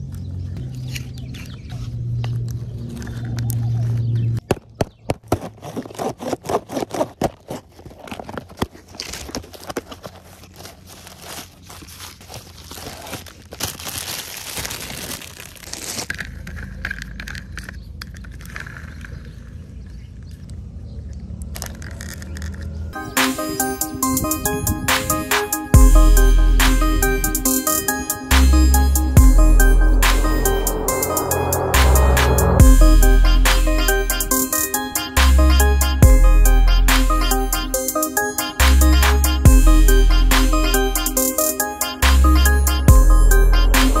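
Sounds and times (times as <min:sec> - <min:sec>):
cardboard box opening: 0:05.3 - 0:16.8
crinkling newspaper rustle: 0:05.4 - 0:16.8.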